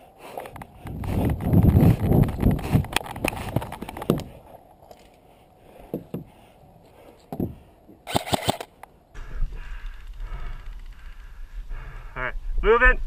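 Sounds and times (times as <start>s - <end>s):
sharp clicks: 8.1s - 9.0s.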